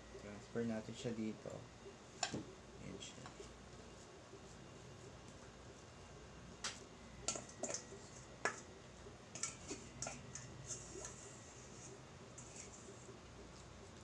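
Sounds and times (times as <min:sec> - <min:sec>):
spatula scraping metal bowl: 0:09.4 - 0:13.0.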